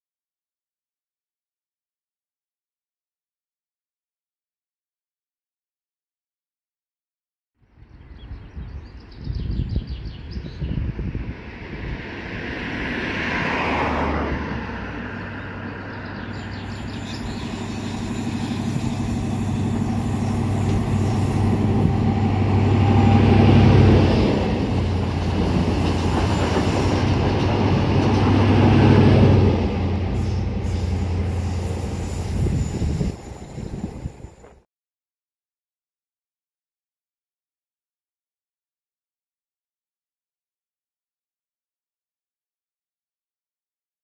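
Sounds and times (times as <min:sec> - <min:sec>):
rail noise: 0:10.8 - 0:34.6
diesel locomotive engine running: 0:15.3 - 0:34.4.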